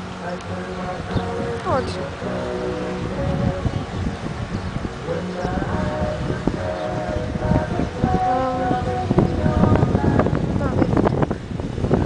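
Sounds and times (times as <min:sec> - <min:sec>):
wind buffeting microphone: 0:00.0 - 0:12.0
person's voice: 0:00.2 - 0:03.6, 0:06.9 - 0:11.4.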